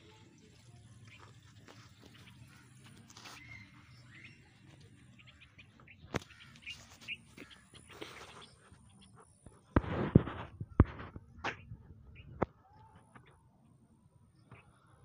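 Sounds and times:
small birds chirping: 0:00.0 - 0:09.8, 0:10.7 - 0:15.0
rustling noise: 0:06.1 - 0:11.9.

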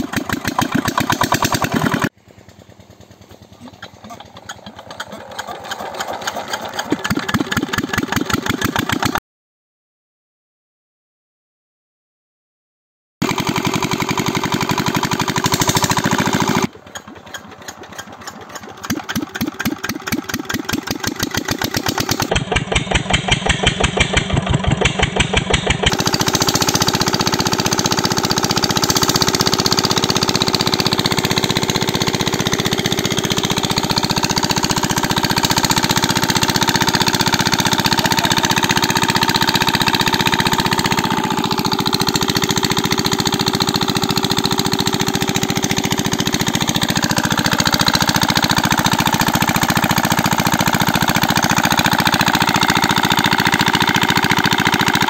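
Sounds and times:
small diesel engine chugging: 0:00.0 - 0:09.2, 0:13.2 - 0:55.0.

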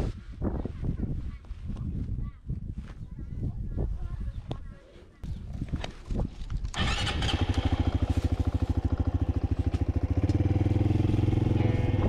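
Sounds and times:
motorcycle engine starting and idling: 0:06.7 - 0:12.0.

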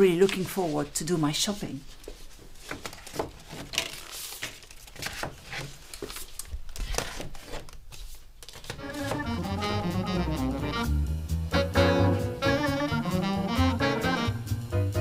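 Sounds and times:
food packaging crinkling: 0:02.7 - 0:08.8
jazz music: 0:08.8 - 0:15.0.

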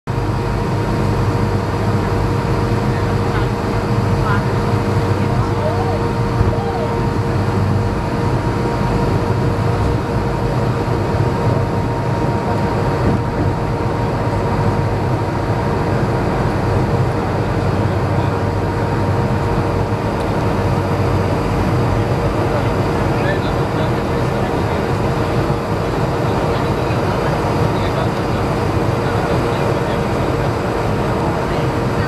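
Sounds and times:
jet engines droning: 0:00.1 - 0:32.0
low rumble: 0:03.8 - 0:17.2.

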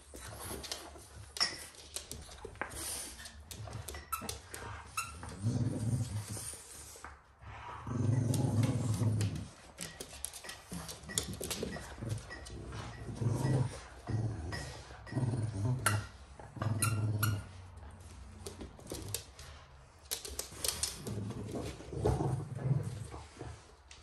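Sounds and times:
dogs growling: 0:05.2 - 0:06.8, 0:07.4 - 0:10.0, 0:10.6 - 0:17.5, 0:20.8 - 0:23.8.

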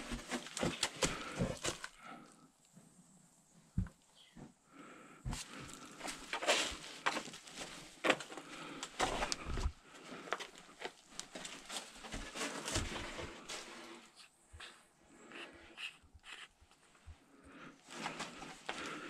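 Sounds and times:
man breathing hard: 0:17.2 - 0:19.0.

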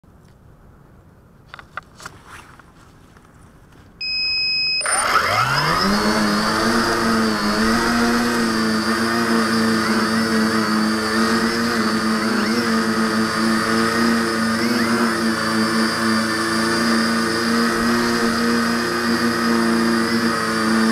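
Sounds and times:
short electronic beep: 0:04.0 - 0:05.4
quadcopter motors whining: 0:04.0 - 0:20.9.

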